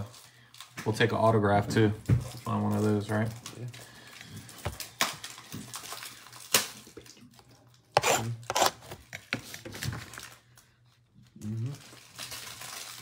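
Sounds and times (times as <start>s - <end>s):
plastic wrap crackling: 2.4s - 10.7s, 11.5s - 13.0s.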